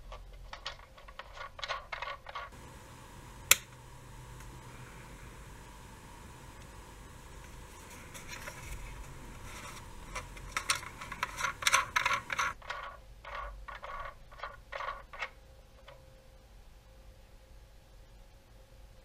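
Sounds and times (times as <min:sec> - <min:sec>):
clicks and scrapes of plastic light: 0:06.5 - 0:16.0.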